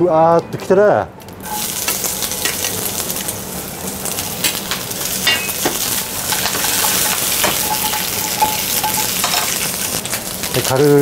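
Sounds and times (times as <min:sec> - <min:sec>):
vegetables sizzling in hot oil: 0:01.4 - 0:11.0
metal tongs clicking against pan: 0:04.4 - 0:10.2.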